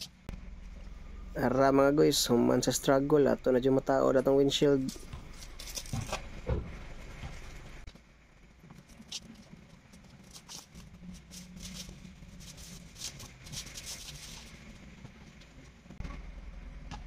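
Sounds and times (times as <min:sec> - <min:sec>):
plastic wrapping crinkling: 0:08.8 - 0:14.8.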